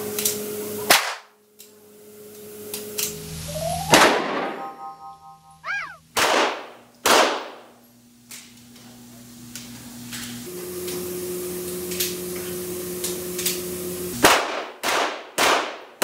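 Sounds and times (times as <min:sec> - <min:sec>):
rising and falling sweep: 0:03.4 - 0:06.0
electronic background music: 0:03.5 - 0:05.6.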